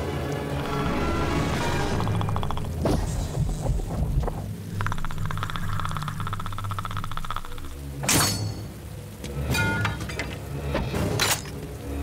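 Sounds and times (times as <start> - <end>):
creature clicking call: 1.9 - 2.8, 4.7 - 7.8.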